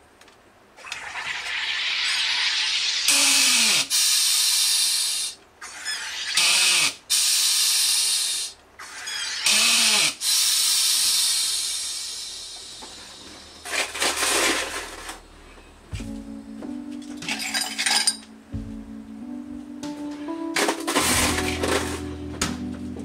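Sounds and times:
gas hissing into bottle: 1.0 - 5.4.

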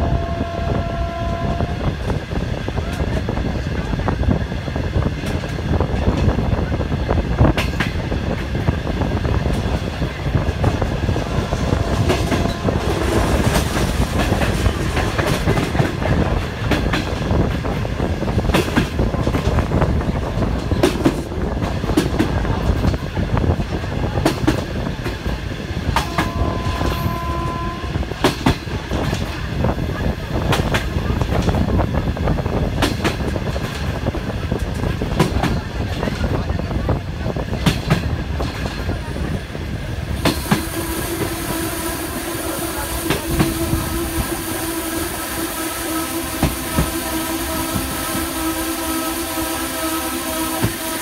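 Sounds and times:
train wheel rumble: 0.0 - 51.0
wind noise: 0.0 - 51.0
wheels clacking over rail joints: 9.4 - 25.2.

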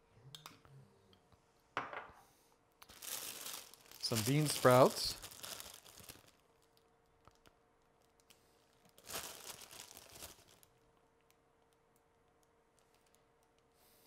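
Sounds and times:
plastic bag crinkling: 2.8 - 7.4, 8.0 - 10.8.

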